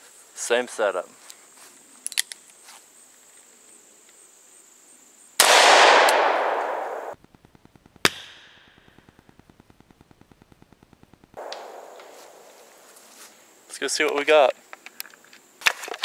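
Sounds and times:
gunshot echoing: 5.4s - 7.2s, 11.4s - 12.8s
sharp crack: 5.4s - 9.3s, 11.3s - 13.0s.

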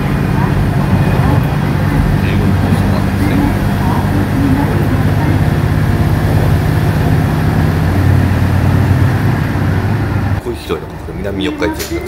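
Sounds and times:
diesel engine drone: 0.0s - 12.0s
train wheel running noise: 0.0s - 12.0s.

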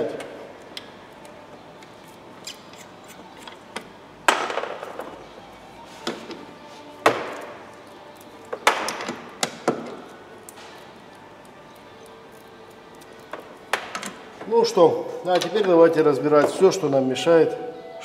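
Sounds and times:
hand tools knocking and clunking: 7.0s - 7.5s, 8.5s - 10.0s.

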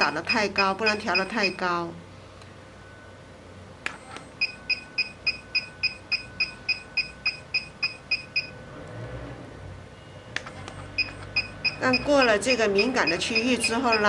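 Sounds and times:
short high beeps: 0.3s - 1.7s, 4.4s - 8.5s, 11.0s - 14.0s.

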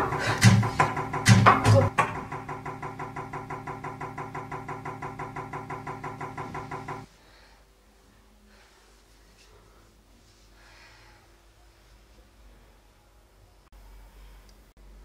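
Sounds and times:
loud sharp hits: 0.0s - 7.1s.

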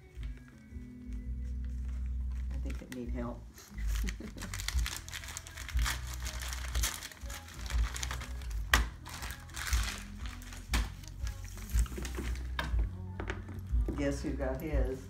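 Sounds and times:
background music: 0.0s - 15.0s
wrapping paper crinkling and tearing: 1.4s - 12.6s.

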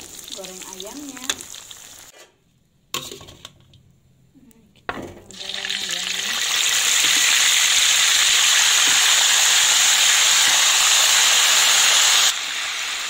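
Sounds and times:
chicken sizzling in hot oil: 0.0s - 2.1s, 5.4s - 13.0s.

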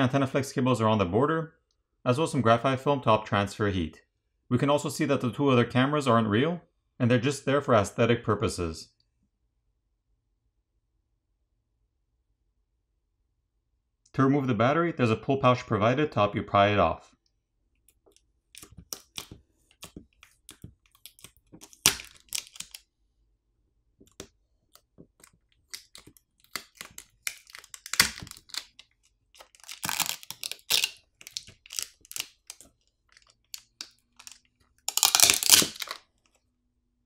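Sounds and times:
adhesive tearing: 18.1s - 22.8s, 24.1s - 36.0s
plastic film crinkling: 18.5s - 22.8s, 25.0s - 36.0s.

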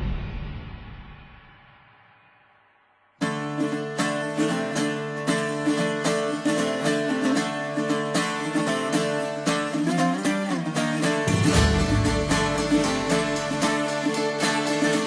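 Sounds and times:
plucked string music: 3.2s - 15.0s.

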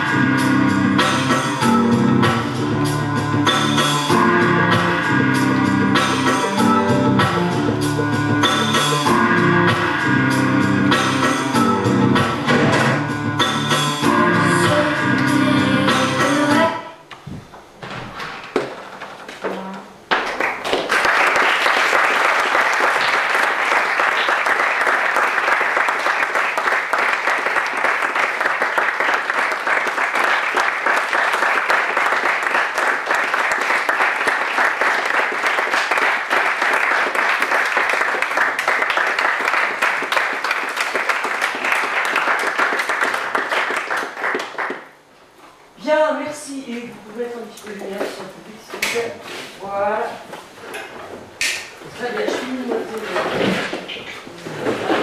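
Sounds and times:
audience applauding: 20.2s - 45.0s.

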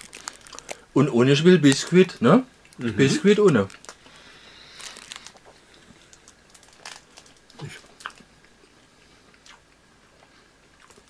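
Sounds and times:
foil wrapper crinkling: 0.0s - 8.2s.

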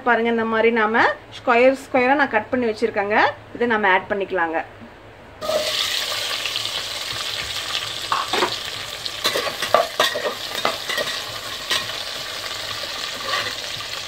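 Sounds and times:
onions sizzling in hot oil: 5.4s - 14.0s
spatula scraping metal pot: 13.0s - 13.8s.

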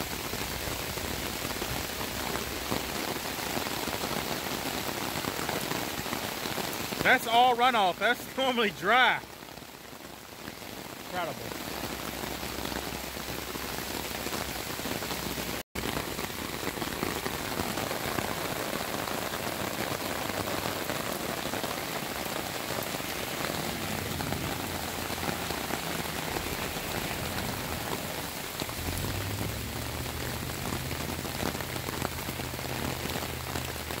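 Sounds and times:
heavy rain pouring: 0.0s - 34.0s
runoff water flowing: 0.0s - 34.0s.

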